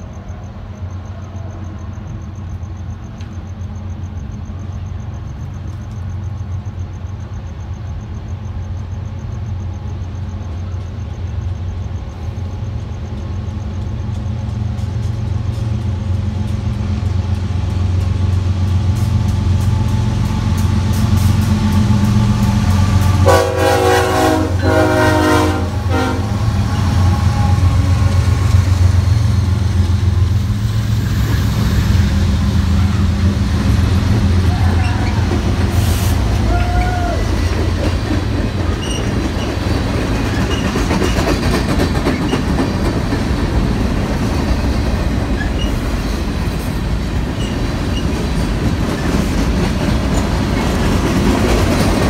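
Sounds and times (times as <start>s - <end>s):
diesel locomotive engine rumble: 0.0s - 52.0s
multi-note train horn: 21.5s - 28.6s.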